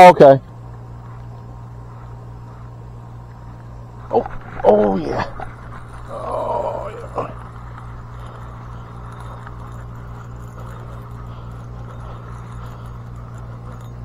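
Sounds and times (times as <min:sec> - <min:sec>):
fishing reel whirring: 0:03.8 - 0:14.0.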